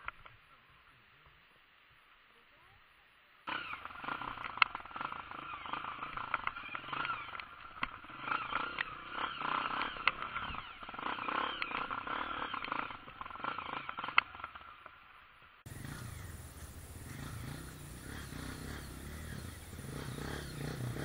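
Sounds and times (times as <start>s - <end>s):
dirt bike engine revving: 3.5s - 15.0s, 15.7s - 21.0s.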